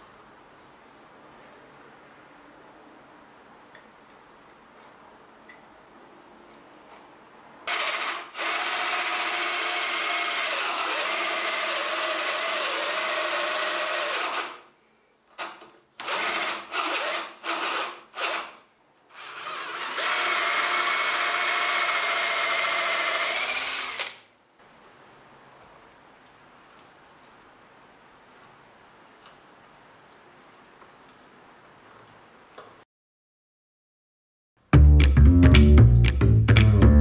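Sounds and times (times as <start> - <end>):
power drill boring into wood: 7.7 - 14.6, 16.0 - 24.2.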